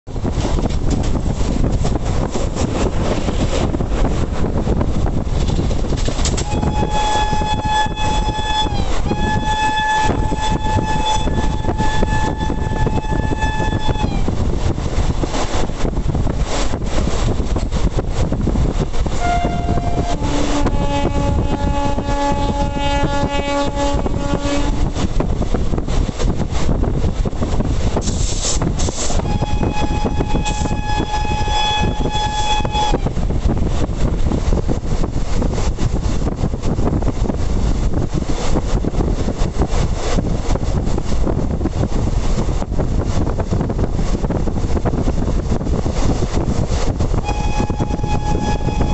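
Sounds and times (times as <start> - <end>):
train rumble and rail clatter: 0.0 - 48.9
wind buffeting microphone: 0.0 - 48.9
train horn blasts: 6.4 - 14.3, 19.2 - 25.1, 29.2 - 33.1, 47.2 - 48.9.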